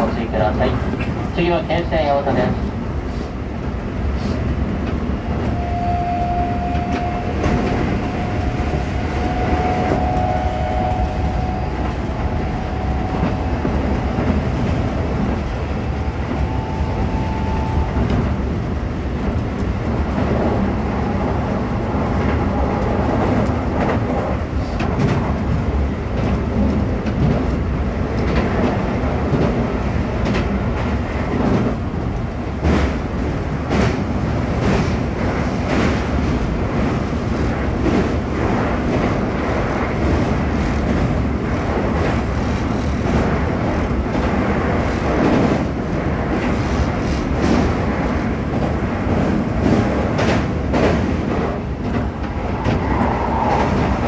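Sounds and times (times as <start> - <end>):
train wheels rumbling on rail: 0.0 - 54.0
clacking over rail joints: 22.2 - 54.0.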